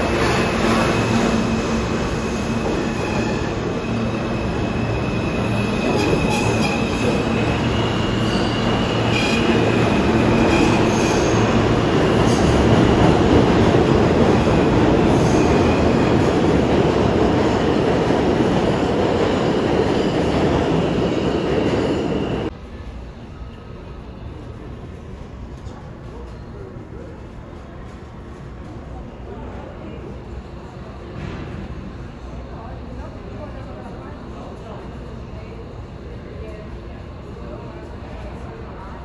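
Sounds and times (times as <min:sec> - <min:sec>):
subway train rumbling on rails: 0:00.0 - 0:39.0
high wheel squeal: 0:00.3 - 0:11.6.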